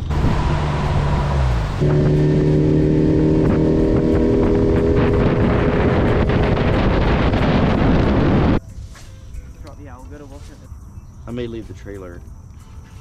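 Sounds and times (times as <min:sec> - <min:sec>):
wind rushing: 0:00.0 - 0:09.4.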